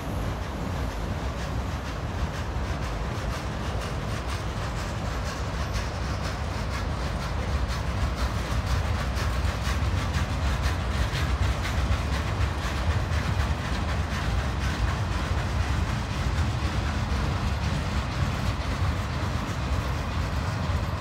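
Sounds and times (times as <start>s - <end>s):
train wheels rumbling on rails: 0.0s - 21.0s
wheels clacking over rail joints: 0.0s - 21.0s.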